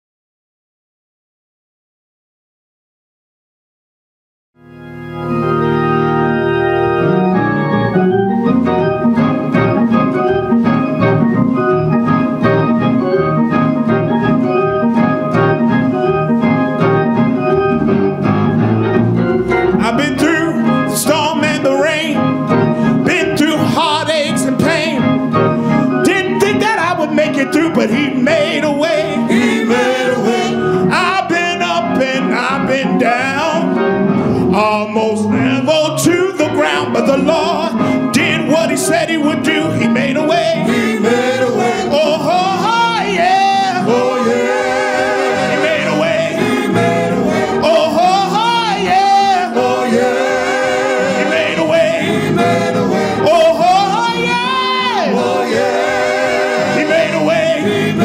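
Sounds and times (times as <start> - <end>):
organ playing gospel chords: 4.6 - 58.0
people singing: 19.7 - 22.3, 26.0 - 33.8, 34.6 - 58.0.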